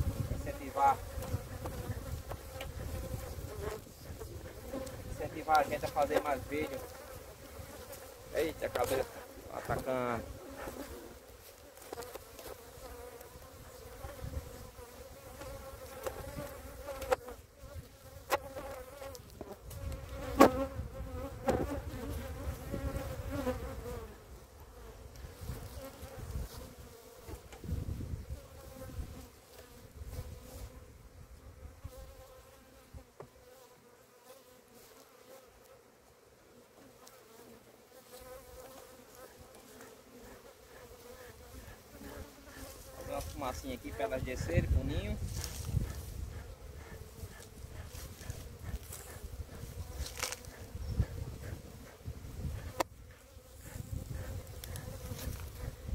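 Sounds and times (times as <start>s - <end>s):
bees buzzing: 0.0s - 35.8s, 36.6s - 55.9s.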